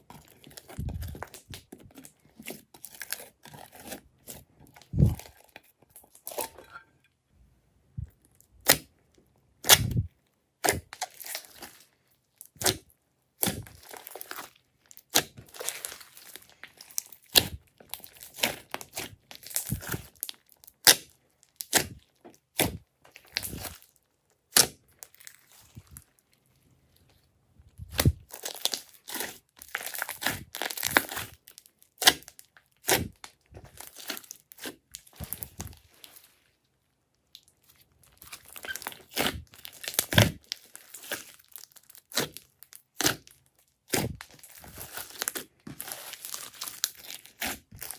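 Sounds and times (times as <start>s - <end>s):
slime squishing with wet pops: 9.6s - 26.2s, 27.8s - 36.3s, 37.1s - 47.9s.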